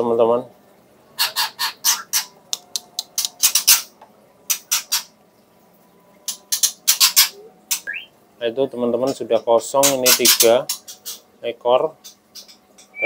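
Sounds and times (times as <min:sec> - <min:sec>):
bird harsh scolding calls: 0:01.2 - 0:02.4, 0:06.3 - 0:08.1, 0:09.8 - 0:11.4, 0:12.0 - 0:13.0.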